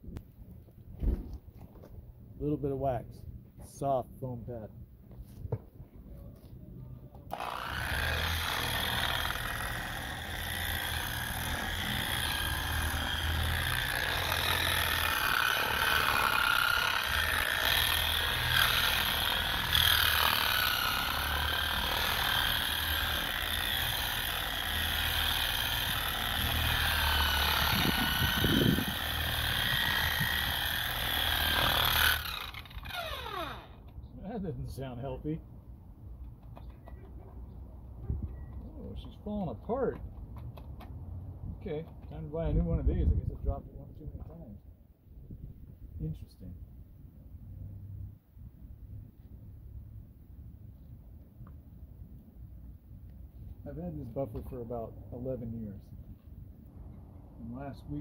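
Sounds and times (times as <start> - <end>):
electric polisher motor whine: 7.3 - 33.9.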